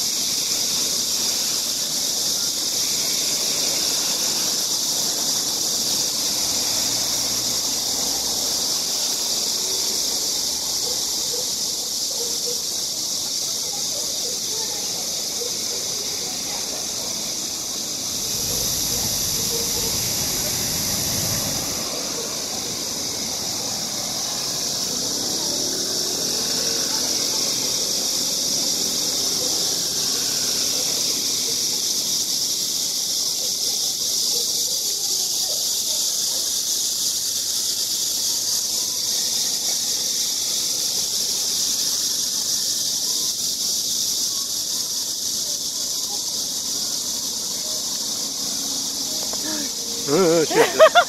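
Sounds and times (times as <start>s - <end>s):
steady high hiss: 0.0s - 51.0s
faint background voices: 42.2s - 51.0s.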